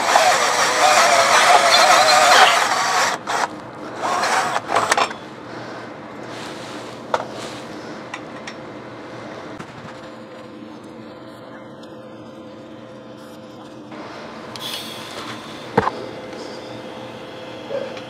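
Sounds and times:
drill cutting steel pipe: 0.0s - 5.1s.

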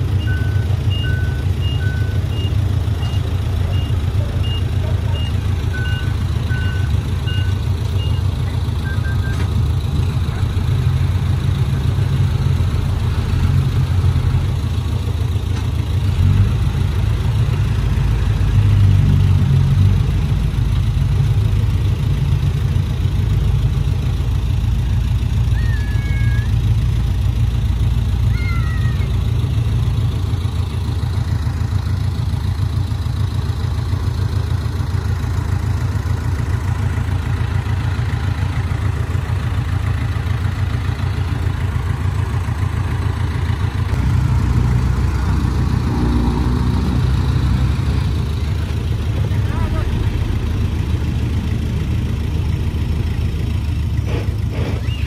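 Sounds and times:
diesel machinery rumbling: 0.0s - 55.0s
reversing alarms beeping: 0.2s - 9.5s.

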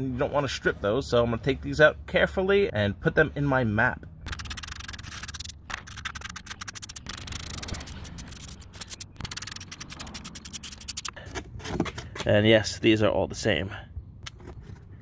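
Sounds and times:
ratchet wrench clicking: 4.3s - 11.2s.

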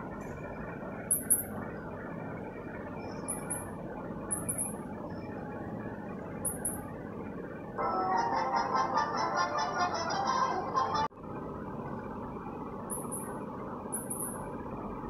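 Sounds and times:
high mouse squeaks from phone: 3.3s - 3.7s.

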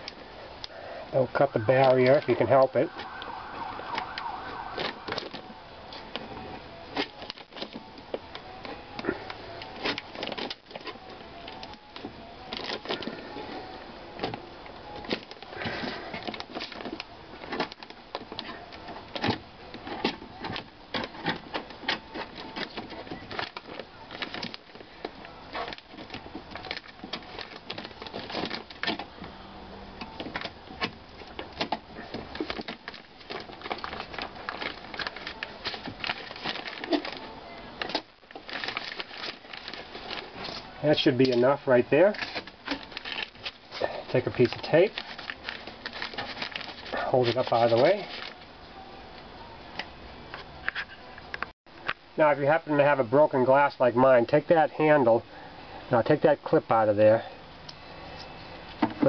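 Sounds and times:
plastic sheet crinkling: 15.0s - 29.0s, 32.0s - 41.1s, 42.0s - 48.4s.

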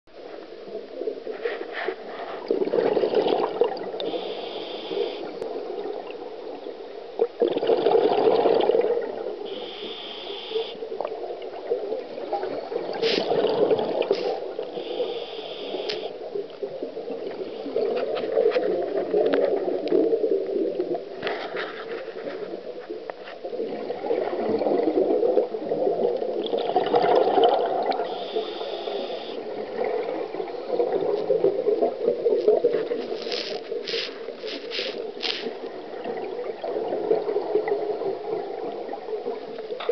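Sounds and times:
exhaled bubbles burbling: 2.4s - 9.8s, 10.5s - 21.3s, 23.5s - 39.9s
regulator inhalation hiss: 4.0s - 5.3s, 9.5s - 10.8s, 14.2s - 16.1s, 28.1s - 29.4s.

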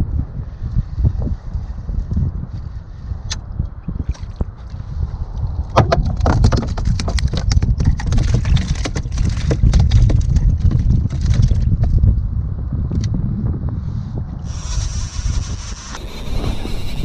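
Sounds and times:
wind on microphone: 0.0s - 17.0s.

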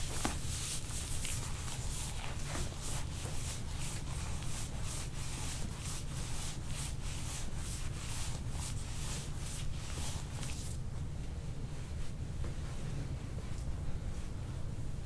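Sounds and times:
rubbing strokes on skin: 0.0s - 10.8s
steady low hum: 0.0s - 15.0s.

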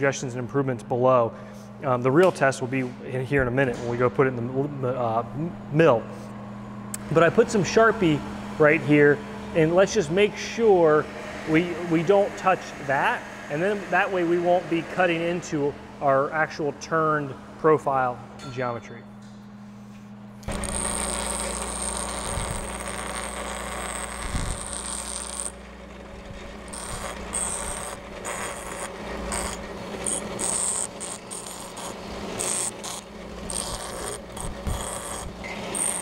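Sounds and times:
bench grinder motor hum: 6.9s - 16.0s, 20.4s - 36.0s
grinding hiss: 20.4s - 36.0s.

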